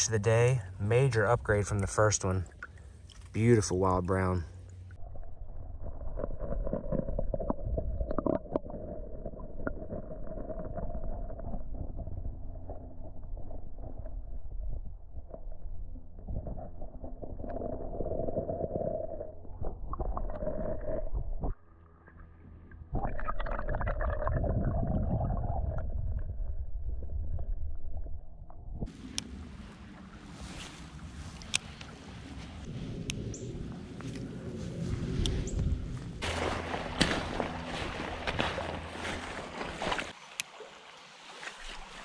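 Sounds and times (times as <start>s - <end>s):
muffled underwater creek current: 0.0s - 42.0s
muffled underwater rushing water: 22.8s - 42.0s.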